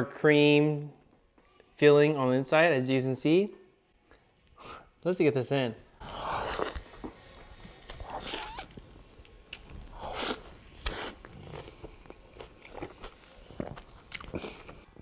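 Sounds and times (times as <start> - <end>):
person chewing food: 6.0 - 15.0.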